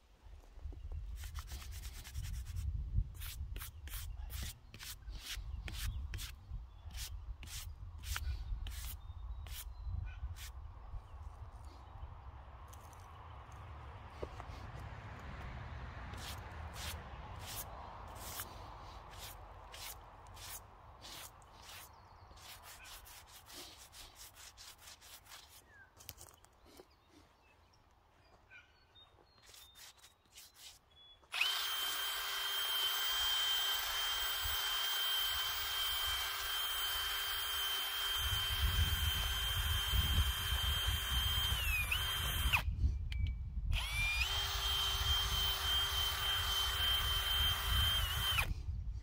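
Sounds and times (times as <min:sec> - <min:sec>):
short evenly spaced strokes: 0:01.1 - 0:09.7, 0:16.1 - 0:26.1, 0:29.4 - 0:42.5
power tool high whine: 0:31.3 - 0:42.7, 0:43.7 - 0:48.6.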